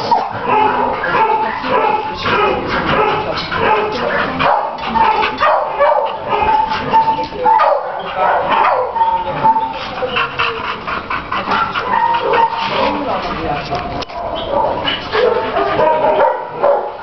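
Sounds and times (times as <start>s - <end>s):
dogs barking: 0.0s - 17.0s
dogs whining: 6.4s - 10.6s, 11.5s - 13.2s.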